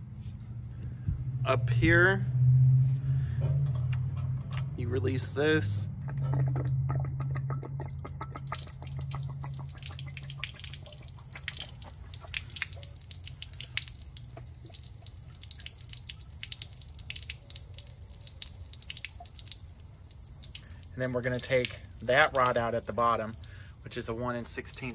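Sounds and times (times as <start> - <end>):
low hum: 0.0 - 15.6
water spattering and dripping: 5.9 - 24.9.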